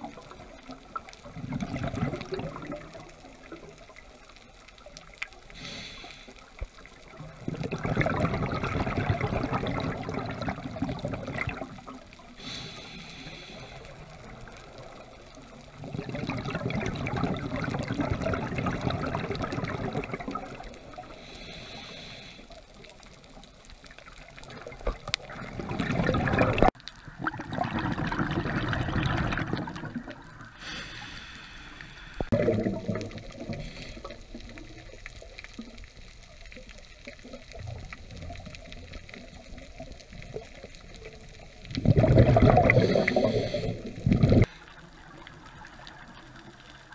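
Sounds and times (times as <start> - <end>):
faint regulator hiss: 3.5 - 7.3, 12.0 - 15.8, 20.6 - 24.3, 30.2 - 32.4, 33.3 - 37.4, 42.7 - 46.9
bubbling diver exhalations: 7.4 - 11.7, 15.8 - 20.6, 25.2 - 31.2, 32.2 - 34.5, 41.7 - 44.5.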